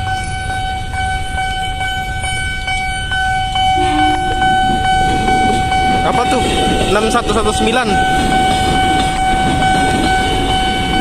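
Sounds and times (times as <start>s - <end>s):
level crossing alarm ringing: 0.0s - 11.0s
traffic: 0.0s - 11.0s
low horn blast: 3.5s - 6.8s.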